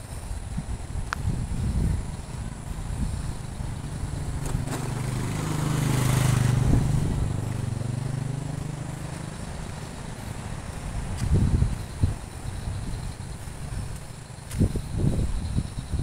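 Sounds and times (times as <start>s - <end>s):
motor vehicle driving past: 1.6s - 14.3s.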